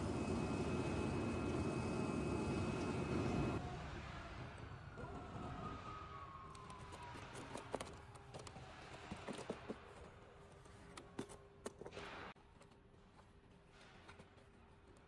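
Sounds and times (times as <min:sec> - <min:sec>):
faint machine whine: 0:00.0 - 0:09.1.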